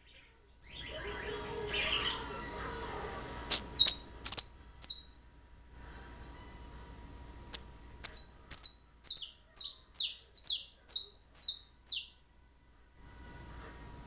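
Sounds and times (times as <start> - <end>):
canary calling: 0.0 - 5.2, 7.5 - 12.2.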